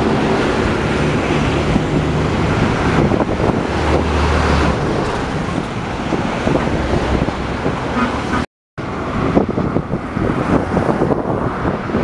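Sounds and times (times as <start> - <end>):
truck engine drone: 0.0 - 12.0
tyre and road noise: 0.0 - 12.0.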